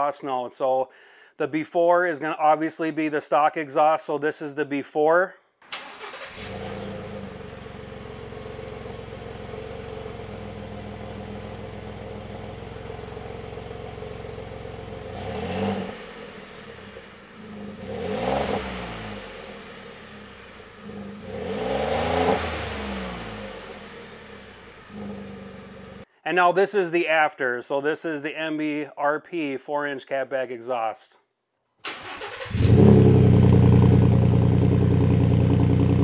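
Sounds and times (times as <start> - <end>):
truck engine idling and revving: 5.9 - 26.0, 32.2 - 36.0.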